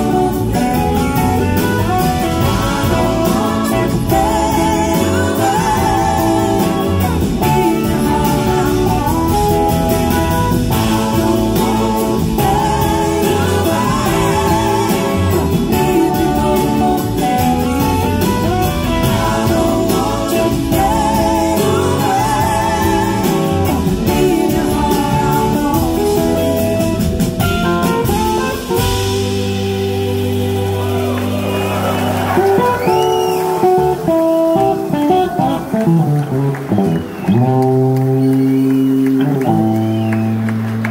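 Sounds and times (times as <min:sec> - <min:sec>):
woman singing lead: 0:00.0 - 0:31.0
bass guitar: 0:00.0 - 0:40.9
drums: 0:00.0 - 0:40.9
electric guitars: 0:00.0 - 0:40.9.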